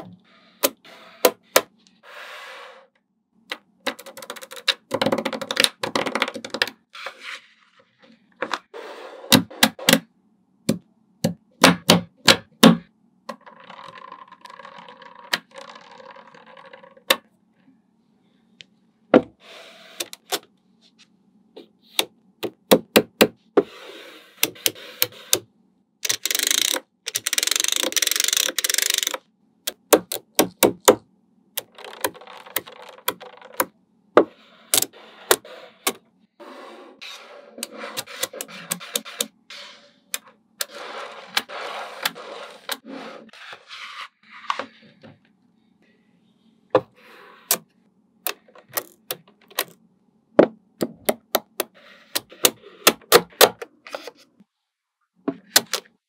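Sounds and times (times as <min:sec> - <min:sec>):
magnetic balls clicking together: 0:26.0 - 0:30.9.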